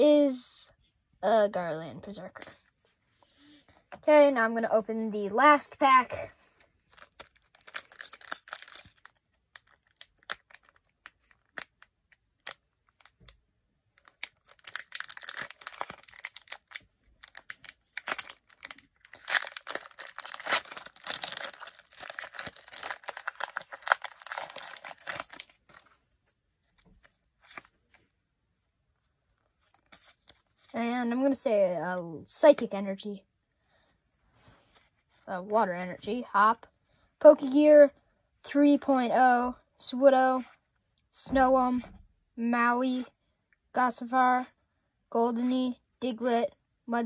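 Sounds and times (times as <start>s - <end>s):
foil wrapper crinkling and tearing: 6.9s - 13.4s, 14.0s - 26.0s.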